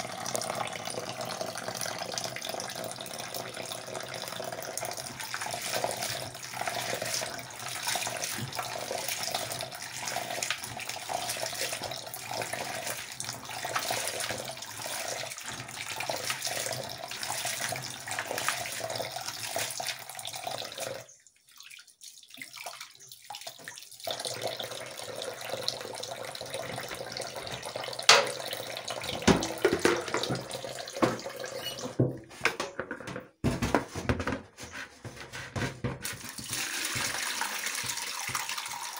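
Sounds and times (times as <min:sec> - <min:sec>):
tap running into a pot: 0:04.9 - 0:18.8, 0:26.5 - 0:38.9
hands swishing beans in water: 0:05.4 - 0:09.2
sharp knocks and clatter: 0:28.1 - 0:28.5, 0:29.1 - 0:36.4.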